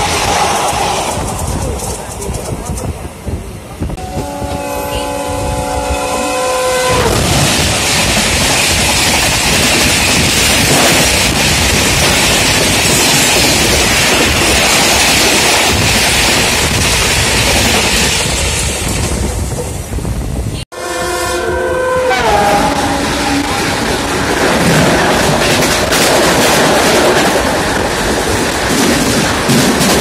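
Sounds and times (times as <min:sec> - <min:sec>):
train coaches rushing past: 0:00.0 - 0:20.6
wind on microphone: 0:00.0 - 0:30.0
train horn: 0:04.0 - 0:07.3, 0:20.7 - 0:24.3.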